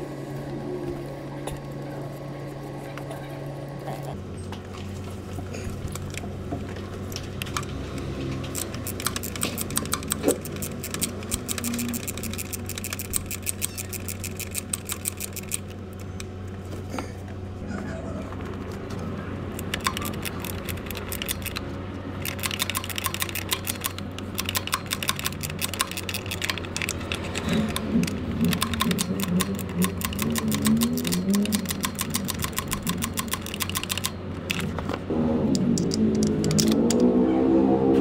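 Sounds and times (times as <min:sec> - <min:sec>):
socket ratchet clicking: 0:08.5 - 0:16.3, 0:19.6 - 0:21.6, 0:22.2 - 0:34.7, 0:35.5 - 0:37.0.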